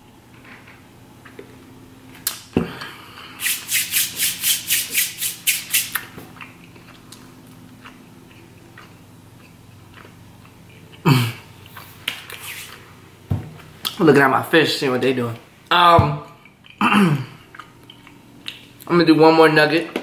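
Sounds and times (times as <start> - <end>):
quick scraping rattling strokes: 3.4 - 6.0.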